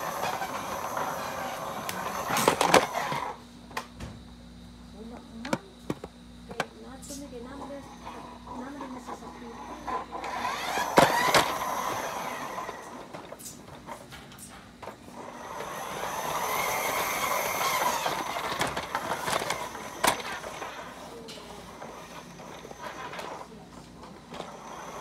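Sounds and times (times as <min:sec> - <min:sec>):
toy truck rolling on hard floor: 0:00.0 - 0:03.4, 0:07.6 - 0:25.0
toy truck bumping knocks: 0:10.6 - 0:12.0.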